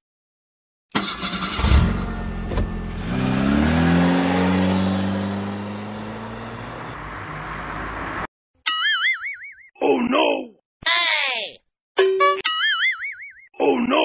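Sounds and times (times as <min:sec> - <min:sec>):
engine starting and revving: 0:00.9 - 0:08.3.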